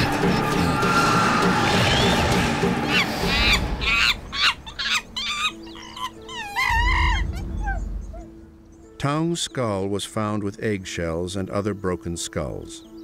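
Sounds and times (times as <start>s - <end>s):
low music drone: 0.0s - 11.2s
shrill wavering animal cries: 0.1s - 8.4s
low rumble: 6.7s - 8.9s.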